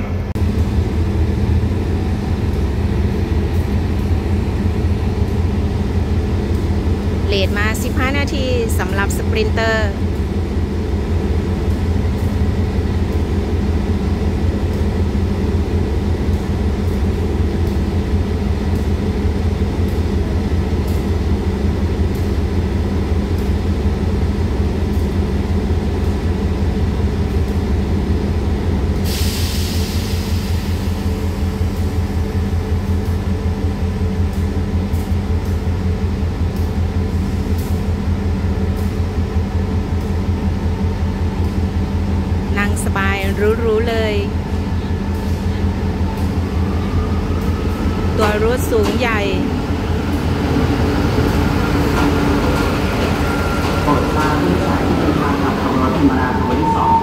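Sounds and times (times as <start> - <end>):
diesel train engine idling: 0.0 - 56.6.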